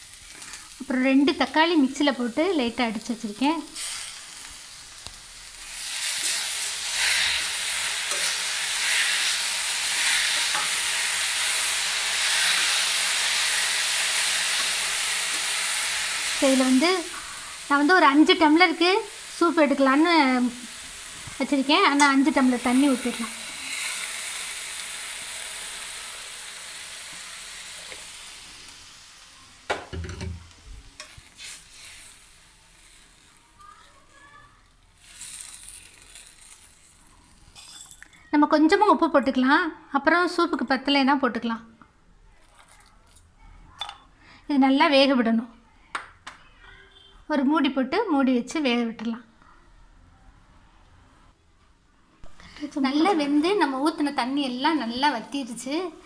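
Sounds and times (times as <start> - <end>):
vegetables sizzling in hot oil: 0.0 - 38.0, 52.3 - 56.0.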